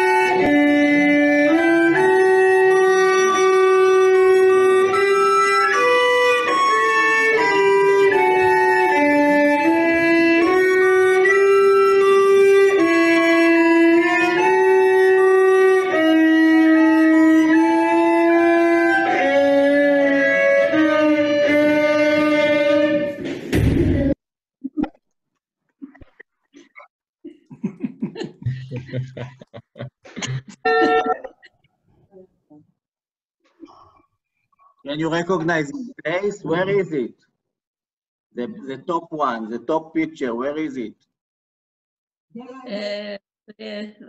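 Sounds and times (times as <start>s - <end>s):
violin playing: 0.0s - 23.2s, 30.6s - 31.3s
recorder playing: 0.0s - 23.3s, 30.6s - 31.4s.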